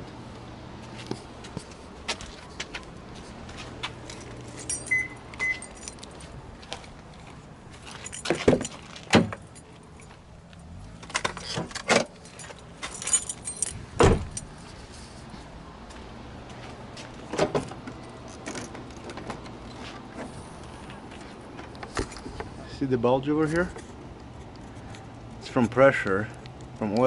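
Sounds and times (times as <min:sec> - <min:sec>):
car keys jangling: 0:03.8 - 0:14.8, 0:17.6 - 0:19.8.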